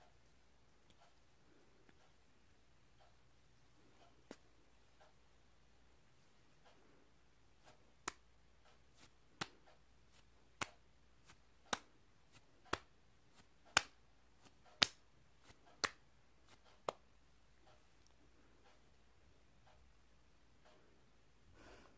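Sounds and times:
palms smacking on face: 7.6s - 17.0s.

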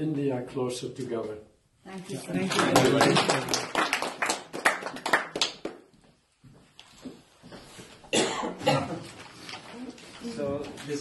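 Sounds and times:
people clapping: 2.2s - 6.1s.

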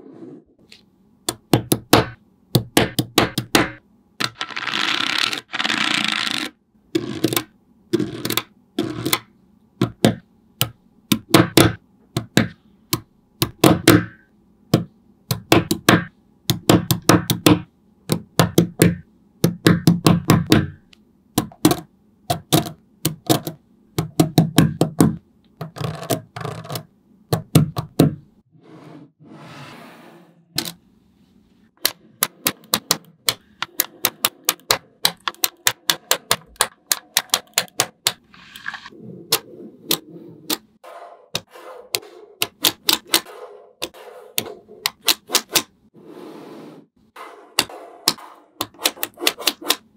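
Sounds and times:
magnetic balls clicking: 5.2s - 28.0s, 31.8s - 38.9s.

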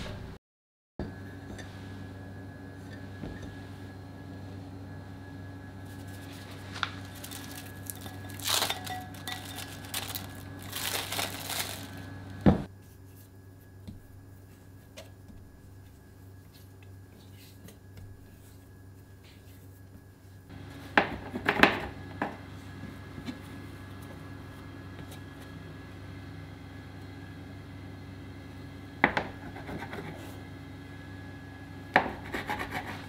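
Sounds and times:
steady low hum: 1.0s - 33.0s
cling film crinkling: 5.9s - 12.2s.

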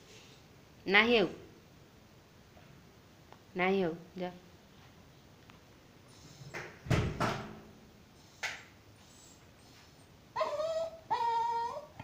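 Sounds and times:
dog whining: 10.3s - 12.0s.

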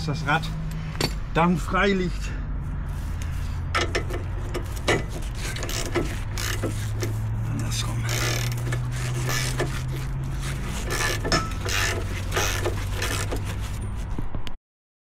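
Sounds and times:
ratchet wrench clicking: 3.8s - 13.8s.

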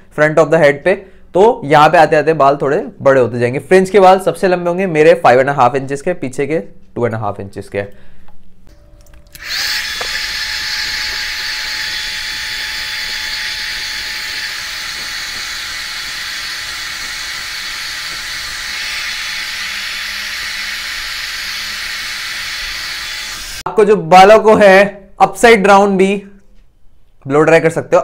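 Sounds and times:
hair dryer blowing: 9.4s - 23.6s.

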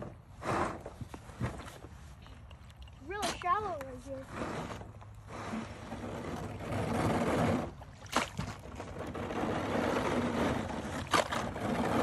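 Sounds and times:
paddle splashing water: 2.6s - 12.0s.

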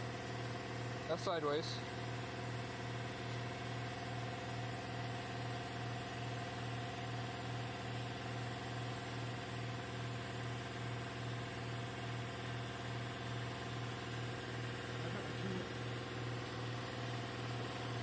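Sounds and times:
machine humming with pulse: 2.0s - 18.0s.

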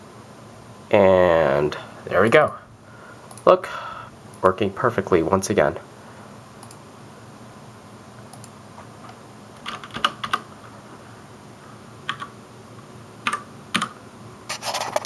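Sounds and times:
low room hum: 0.0s - 15.0s
keyboard and mouse clicking: 6.6s - 6.8s, 8.3s - 8.6s, 9.6s - 10.5s, 12.1s - 12.3s, 13.2s - 14.0s.

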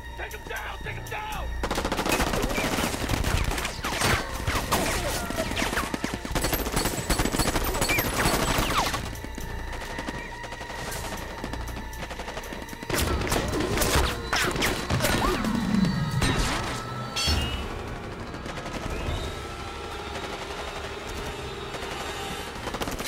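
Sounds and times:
rapid automatic gunfire: 1.6s - 13.2s, 17.7s - 23.0s.

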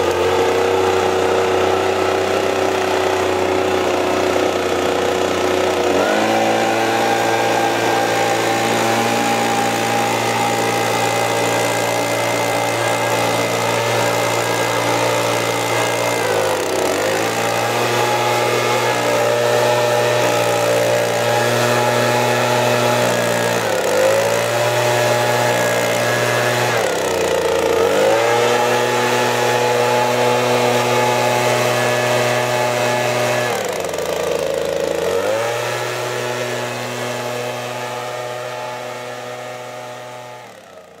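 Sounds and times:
leaf blower running: 0.0s - 41.0s.

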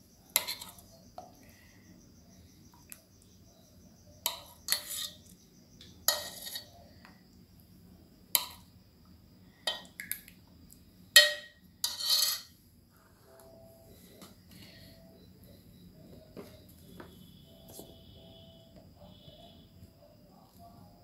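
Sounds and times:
metal ladle clinking on pot: 11.2s - 12.5s.

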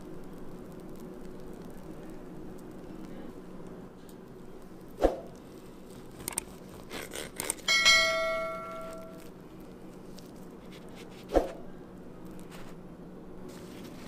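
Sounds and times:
knife striking glass plate: 7.7s - 9.2s.

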